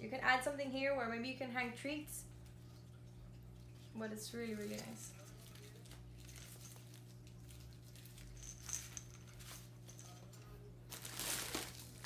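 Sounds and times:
toy packaging rustling: 10.9 - 12.0.

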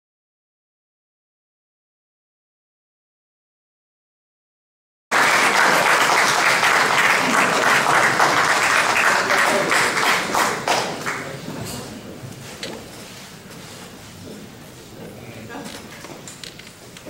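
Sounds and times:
audience applauding: 5.1 - 11.5.

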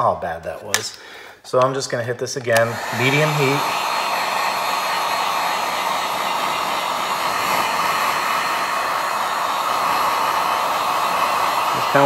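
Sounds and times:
heat gun blowing hot air: 2.5 - 12.0.

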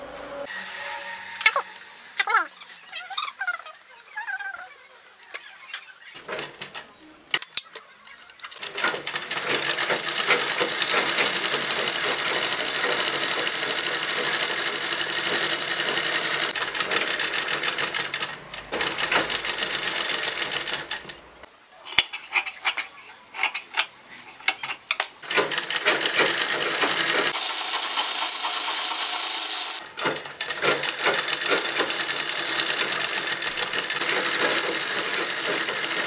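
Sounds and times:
sewing machine stitching: 8.5 - 21.2, 25.2 - 36.0.

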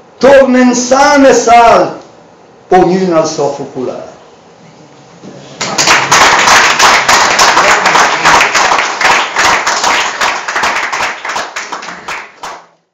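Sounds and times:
audience applauding: 5.6 - 12.7.

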